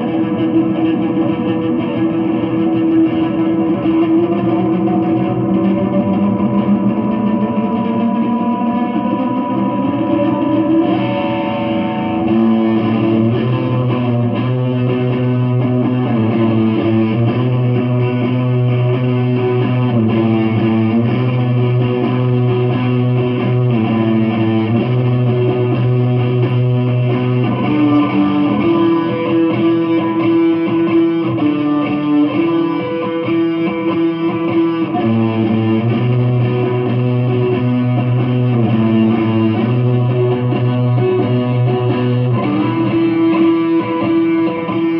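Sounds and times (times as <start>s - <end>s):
electric guitar chords: 0.0s - 44.9s.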